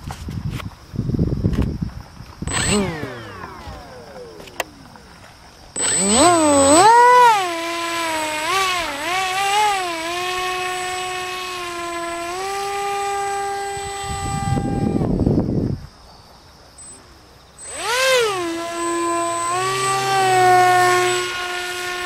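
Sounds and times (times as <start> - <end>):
model plane motor whining: 2.4 - 15.2, 17.6 - 22.0.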